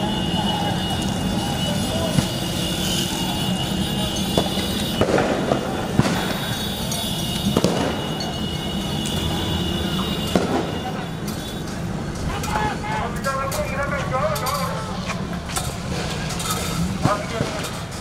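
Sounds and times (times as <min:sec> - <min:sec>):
loud street noise: 0:00.0 - 0:18.0
sharp bangs: 0:04.2 - 0:09.4, 0:10.1 - 0:14.7, 0:15.7 - 0:18.0.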